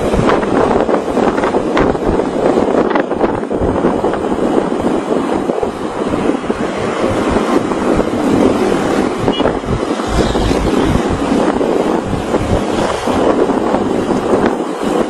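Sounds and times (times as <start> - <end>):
road and vehicle noise: 0.0 - 15.0
wind buffeting microphone: 0.0 - 15.0.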